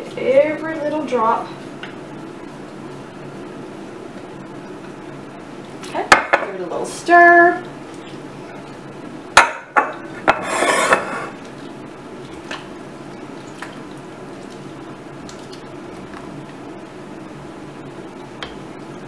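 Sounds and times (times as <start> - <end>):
dishes knocking: 9.4 - 11.4
scraping rustle: 10.4 - 11.4.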